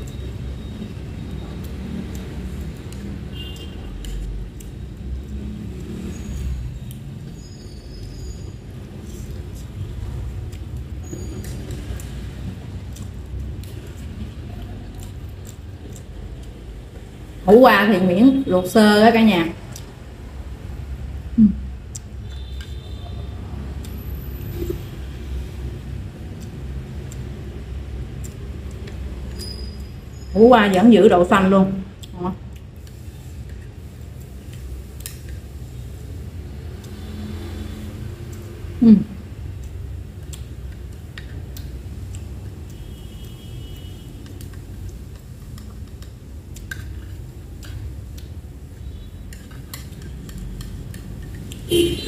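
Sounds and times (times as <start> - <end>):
fork clicking against plate: 49.3 - 51.7.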